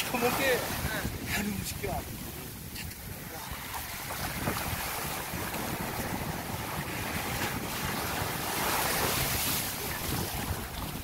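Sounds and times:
surf washing up a beach: 0.0 - 11.0
wind rumbling on microphone: 0.0 - 11.0.

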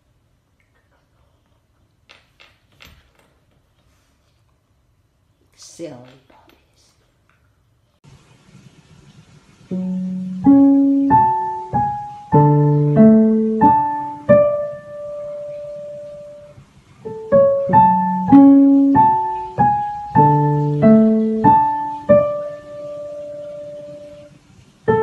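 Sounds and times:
electronic keyboard melody: 9.7 - 24.3.

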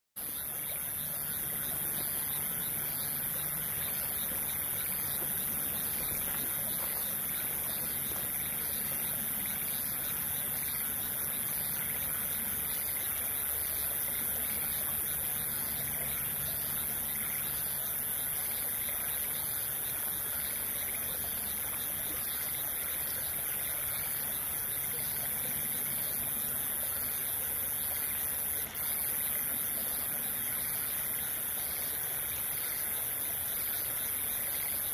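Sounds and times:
stream flowing: 0.2 - 34.9.

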